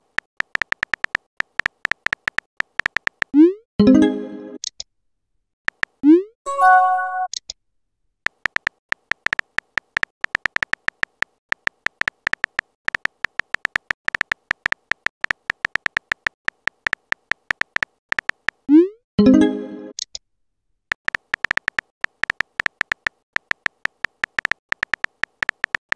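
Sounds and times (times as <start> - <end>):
keyboard typing clicks: 0.0 - 3.4, 8.3 - 18.6, 20.9 - 25.9.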